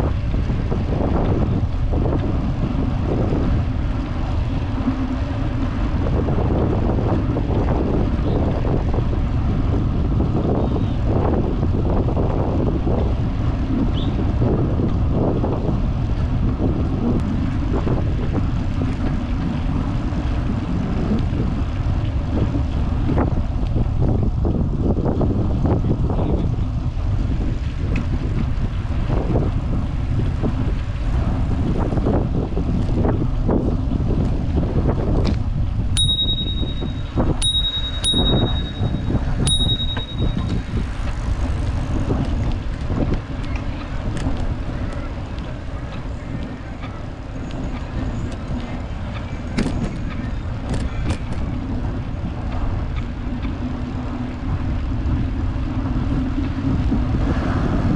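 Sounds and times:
wind and road rumble: 0.0s - 57.9s
bicycle bell dings: 36.0s - 40.8s.

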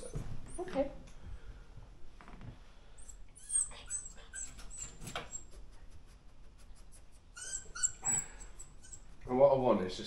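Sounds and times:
dog whining: 0.0s - 0.7s, 3.0s - 5.7s, 7.3s - 9.2s.

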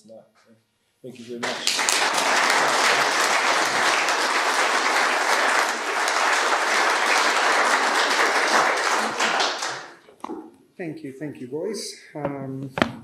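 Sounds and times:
audience applauding: 1.3s - 10.0s.

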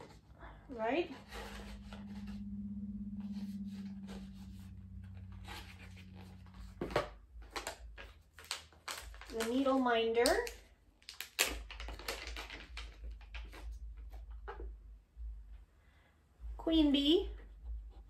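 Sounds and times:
pulsing low hum: 0.0s - 8.0s, 13.7s - 18.0s
packages rustling and clicking: 3.3s - 14.6s.

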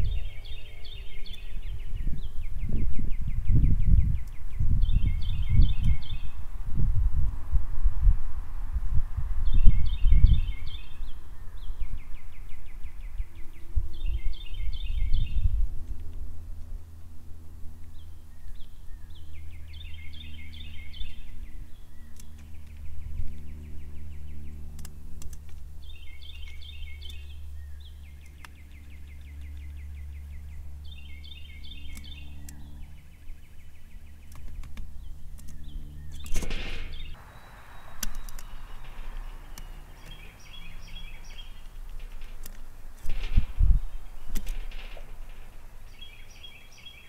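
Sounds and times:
songbird singing: 0.0s - 47.0s
steady low hum: 0.0s - 47.0s
steady hiss: 36.6s - 46.0s.

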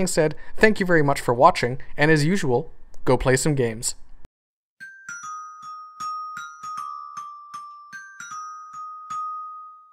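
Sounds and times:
glockenspiel jingle: 4.8s - 9.9s.

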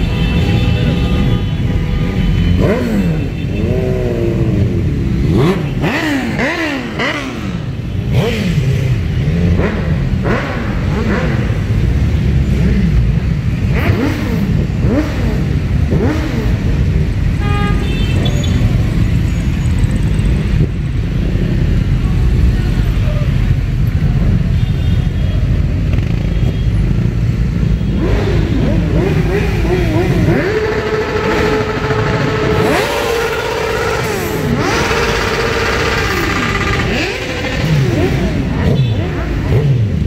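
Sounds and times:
motorcycle revving: 0.0s - 40.0s
motorcycles riding past: 25.5s - 40.0s.

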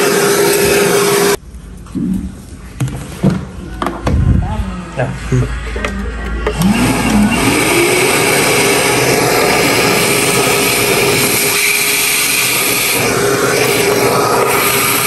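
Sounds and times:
vacuum cleaner motor whine: 0.0s - 1.4s, 5.8s - 15.0s.

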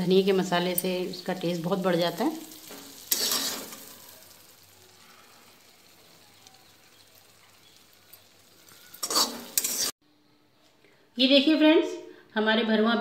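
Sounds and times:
faint sizzle from pan: 0.0s - 10.0s
spatula scraping in a pan: 2.5s - 10.0s.

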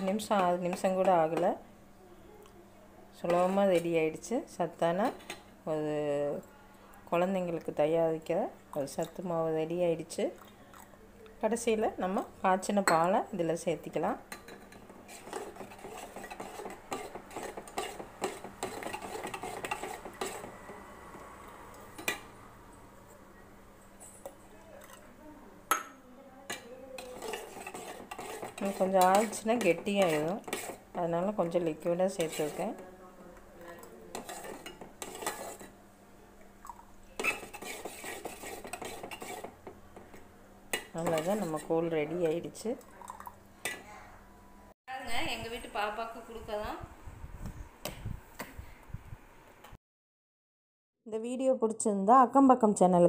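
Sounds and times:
spoon scraping and clinking in pot: 3.3s - 4.0s, 14.3s - 21.2s, 26.5s - 32.8s, 34.1s - 35.8s, 37.2s - 42.3s.

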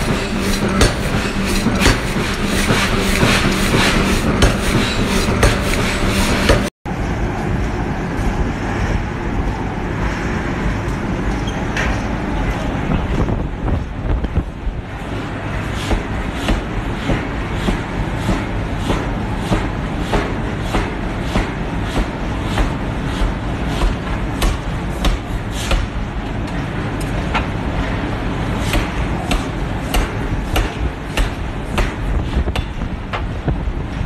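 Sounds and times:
forging hammer striking steel: 0.0s - 6.7s, 28.6s - 33.3s
low machine rumble: 0.0s - 19.4s.

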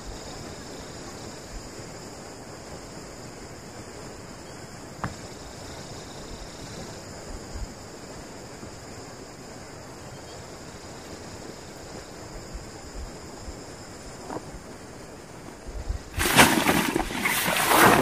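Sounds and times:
wind on microphone: 15.5s - 18.0s.

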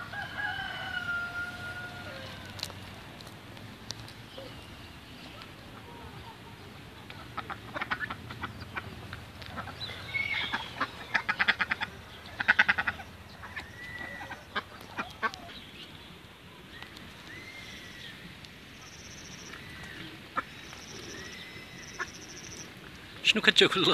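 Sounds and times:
ducks quacking: 5.8s - 15.5s.

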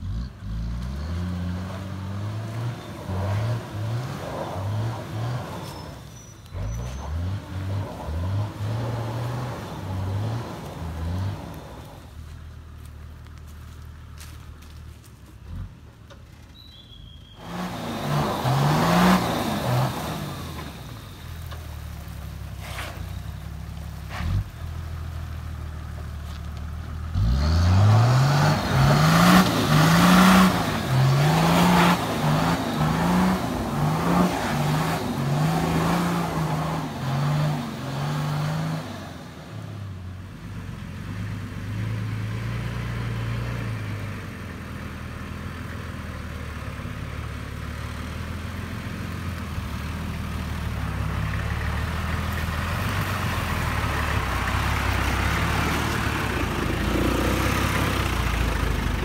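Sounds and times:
engine revving hard: 17.4s - 20.7s, 27.1s - 39.1s.

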